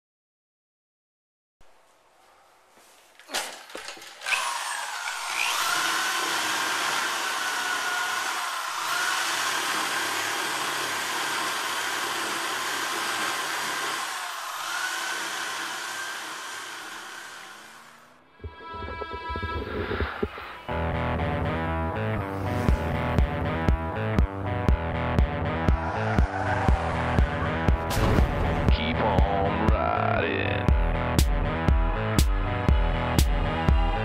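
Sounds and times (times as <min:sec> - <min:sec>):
drill motor whine: 0:04.2 - 0:20.4, 0:25.6 - 0:27.9.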